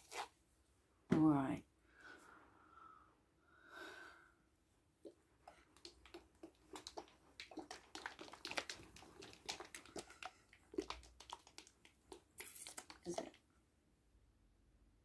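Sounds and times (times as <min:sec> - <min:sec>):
plastic bottle being shaken: 0:05.4 - 0:13.4.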